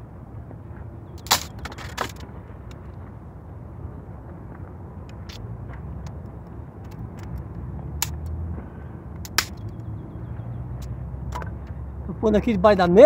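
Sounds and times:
wind rumble on microphone: 0.0s - 13.0s
dry sticks snapping: 1.2s - 2.8s, 5.0s - 8.4s, 9.2s - 9.9s.

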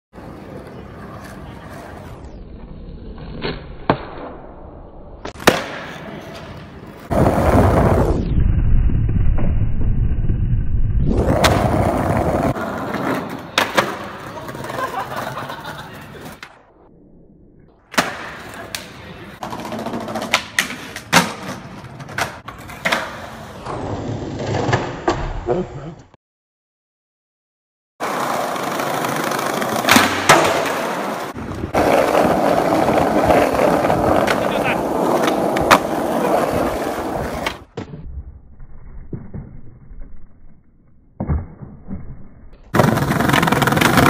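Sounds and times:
skateboard wheels rolling on asphalt: 0.1s - 4.0s, 5.2s - 16.5s, 18.0s - 25.0s, 28.0s - 40.9s, 42.7s - 44.0s
skateboard clacks: 11.3s - 15.4s, 17.9s - 23.8s, 28.0s - 37.7s, 42.7s - 44.0s.

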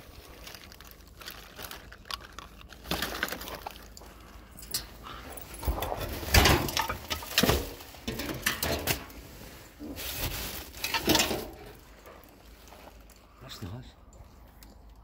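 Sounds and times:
cardboard and plastic bags rustling: 0.0s - 13.8s
rubbish knocking in bin: 5.6s - 9.1s.

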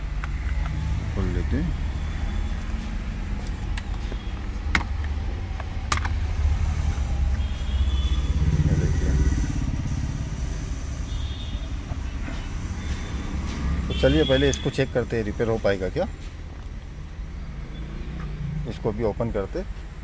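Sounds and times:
motor vehicles rumbling: 0.0s - 20.0s.

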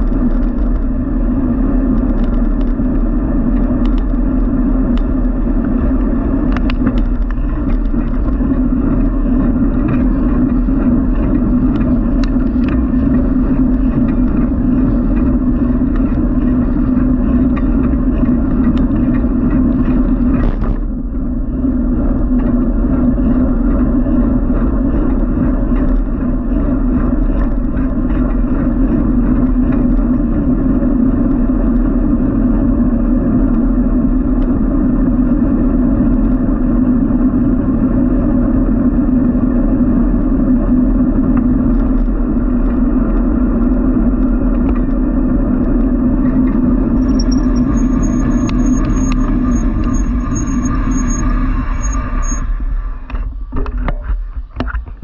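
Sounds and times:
passing motor traffic: 0.0s - 55.0s
road noise: 0.0s - 55.0s
wind rushing: 44.3s - 53.5s
high repeated ticking: 47.0s - 52.4s.

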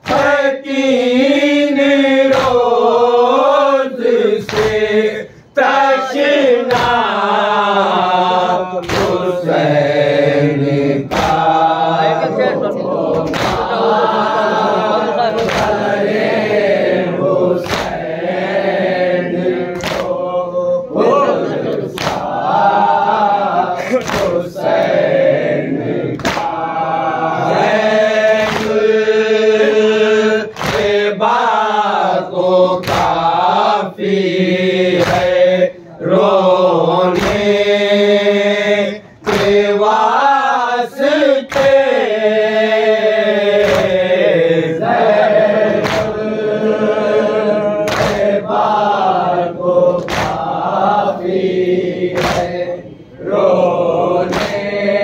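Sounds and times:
hands slapping chests: 0.0s - 0.4s, 2.3s - 2.7s, 4.4s - 5.0s, 6.6s - 7.1s, 8.8s - 9.4s, 11.0s - 11.6s, 13.1s - 13.9s, 15.2s - 16.0s, 17.6s - 18.1s, 19.6s - 20.2s, 21.7s - 22.4s, 23.8s - 25.0s, 26.1s - 26.8s, 28.2s - 29.0s, 30.5s - 31.1s, 32.8s - 33.4s, 34.9s - 35.5s, 37.1s - 37.6s, 39.2s - 39.7s, 41.5s - 41.9s, 43.5s - 44.2s, 45.7s - 46.3s, 47.8s - 48.7s, 49.9s - 50.7s, 52.1s - 52.7s, 54.2s - 54.8s
men chanting in unison: 0.0s - 55.0s.

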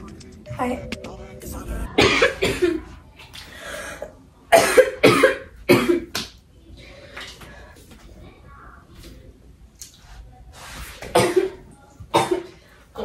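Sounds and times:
person coughing: 2.0s - 2.8s, 4.5s - 6.1s.

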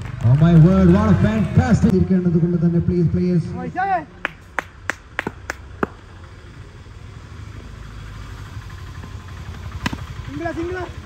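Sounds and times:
hand claps: 4.2s - 6.0s.

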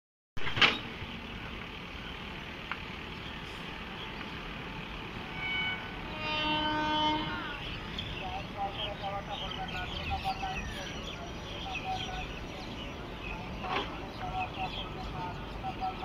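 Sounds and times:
locomotive horn blast: 5.1s - 8.0s.

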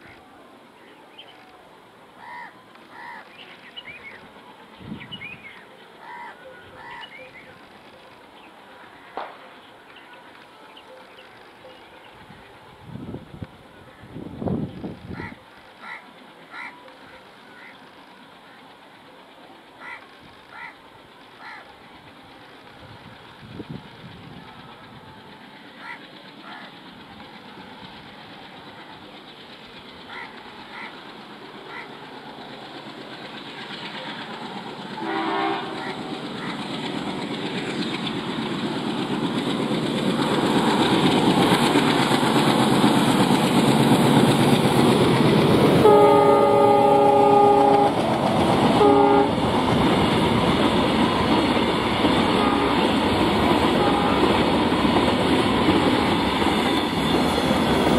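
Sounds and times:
diesel locomotive engine: 0.0s - 57.9s
train wheels clattering: 18.8s - 57.9s
locomotive horn: 35.0s - 36.2s, 45.8s - 48.1s, 48.7s - 49.4s, 52.3s - 54.6s.

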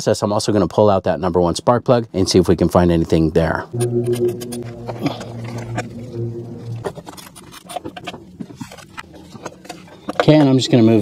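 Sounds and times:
background music low note: 3.7s - 7.2s.

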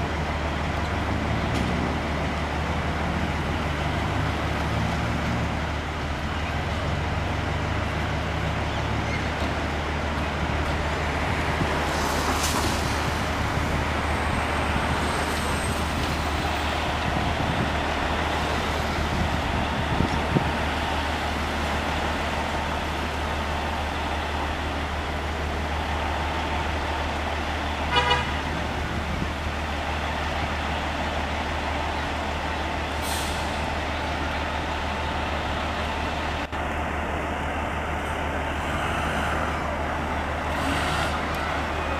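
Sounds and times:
diesel engine idling: 0.0s - 41.9s
short horn toot: 27.9s - 28.4s.

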